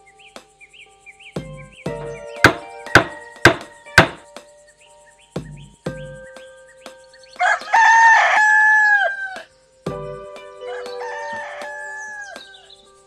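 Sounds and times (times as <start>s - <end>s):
soft thumps: 1.4s - 4.2s
rooster crowing: 7.4s - 9.5s, 10.6s - 12.8s.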